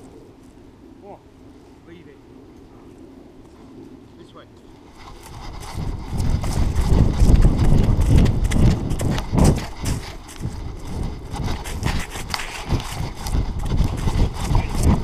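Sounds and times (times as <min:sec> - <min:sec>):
dog running strides thudding: 0:04.9 - 0:15.0.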